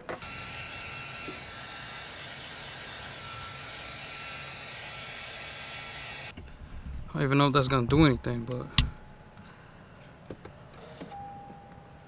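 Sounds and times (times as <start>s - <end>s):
hot-air blower running: 0.0s - 6.4s.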